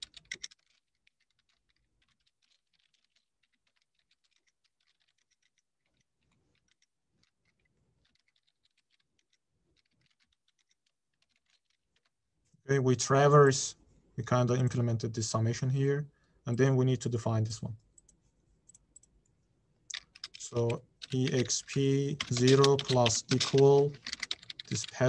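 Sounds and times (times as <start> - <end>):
faint keyboard typing: 0.0 - 12.2, 17.7 - 25.0.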